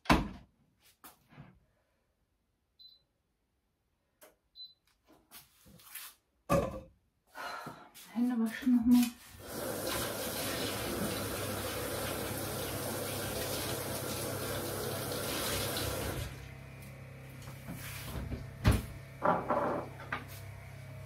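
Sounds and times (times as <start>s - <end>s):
tap water running into sink: 9.4s - 16.5s.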